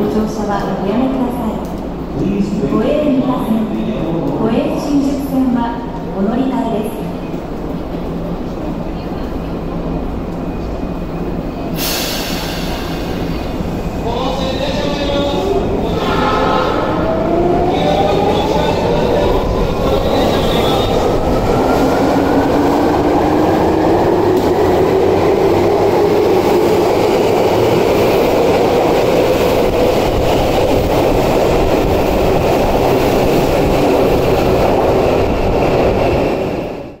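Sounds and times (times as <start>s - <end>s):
wheels rumbling on rail: 7.0s - 37.0s.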